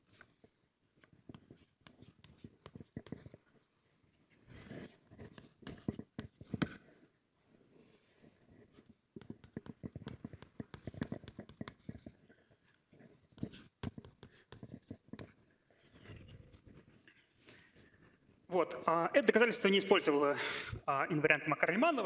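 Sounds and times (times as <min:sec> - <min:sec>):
pen writing by hand: 0:00.0 - 0:03.6, 0:04.5 - 0:07.1, 0:08.4 - 0:17.0.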